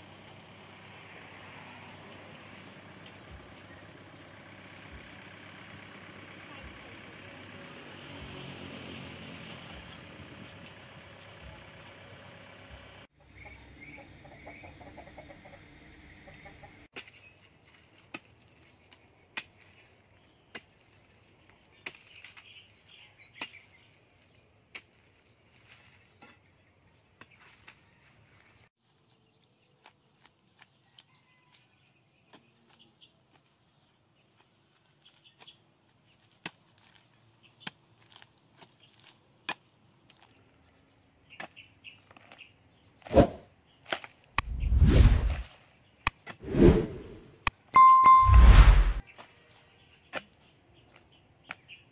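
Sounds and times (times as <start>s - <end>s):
chickens clucking: 13.3s - 16.8s.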